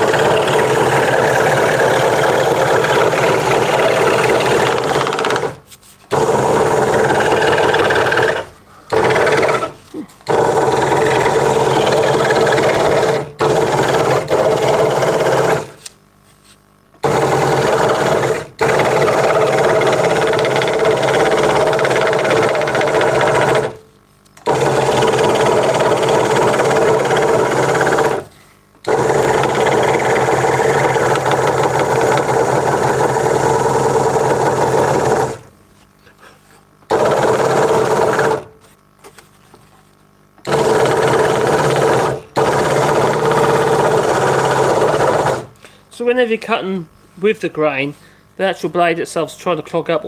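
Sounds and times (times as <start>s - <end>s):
scroll saw cutting wood: 0.0s - 15.8s.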